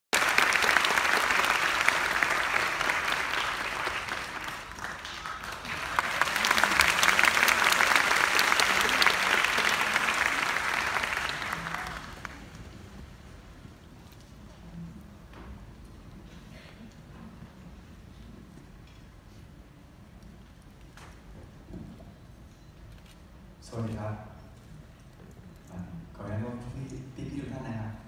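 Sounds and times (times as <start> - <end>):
audience applauding: 0.1 - 13.0.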